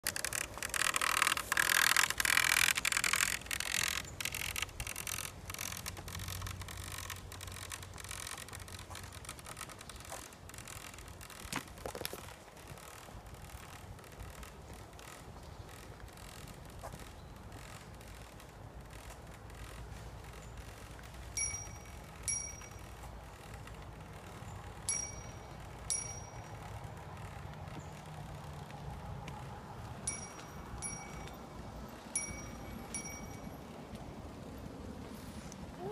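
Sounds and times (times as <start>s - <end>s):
bicycle bell dings: 21.4s - 23.0s, 24.8s - 26.8s, 30.0s - 33.8s.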